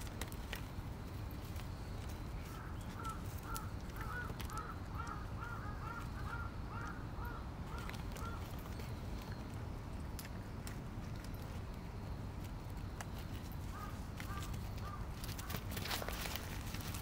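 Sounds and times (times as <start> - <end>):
crow cawing: 2.5 - 8.5, 13.7 - 15.6.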